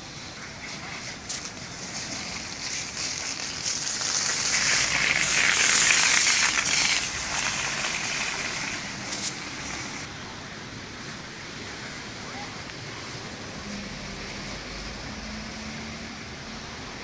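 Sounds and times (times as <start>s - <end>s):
heavy rain and hail falling: 0.0s - 17.0s
sharp hail ticks: 1.3s - 9.8s.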